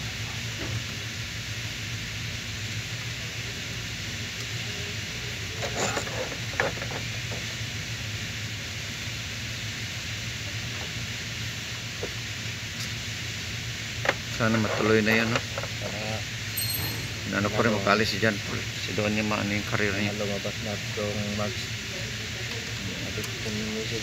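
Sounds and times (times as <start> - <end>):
radiator cooling fan whirring: 0.0 - 24.0
socket wrench clinking on metal: 16.6 - 17.6.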